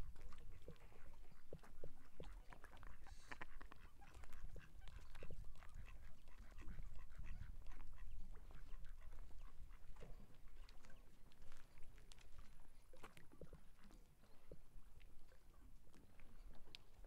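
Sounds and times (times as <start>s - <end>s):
ducks quacking: 0.5s - 9.9s.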